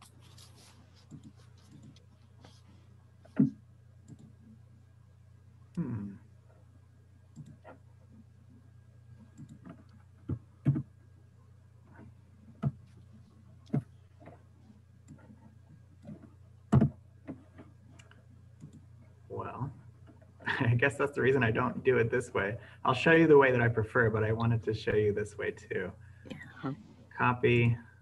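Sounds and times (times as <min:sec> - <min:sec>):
low hum: 0:02.8 - 0:28.0
computer mouse clicking: 0:04.0 - 0:04.4, 0:07.3 - 0:07.8, 0:09.3 - 0:10.8, 0:16.0 - 0:18.8.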